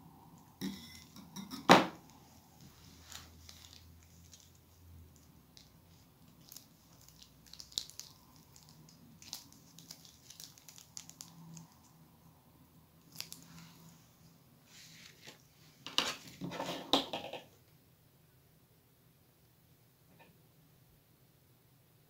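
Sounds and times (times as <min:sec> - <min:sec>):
plastic bag crinkling: 0:03.0 - 0:12.0, 0:13.0 - 0:13.8.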